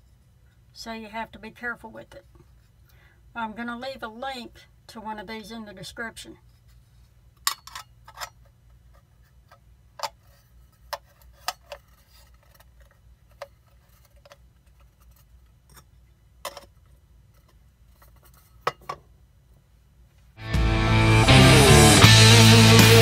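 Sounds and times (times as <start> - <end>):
metal pan parts clinking: 7.5 - 8.4.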